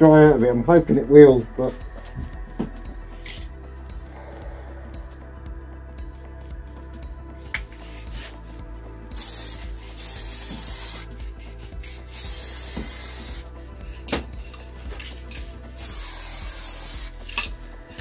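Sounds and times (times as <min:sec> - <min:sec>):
background music: 0:00.0 - 0:18.0
spray paint can hissing: 0:09.1 - 0:18.0.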